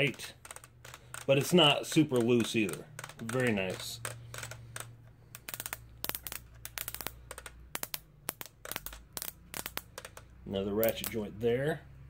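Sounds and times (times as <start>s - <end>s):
plastic ratchet joints clicking: 0.0s - 11.2s.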